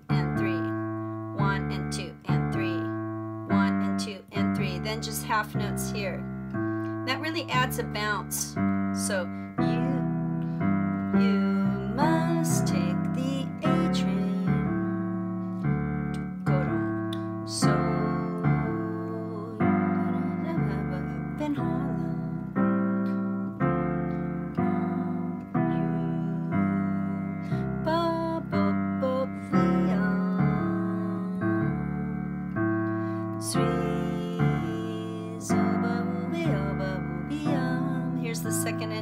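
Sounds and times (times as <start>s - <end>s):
digital piano jazz chords: 0.0s - 39.0s.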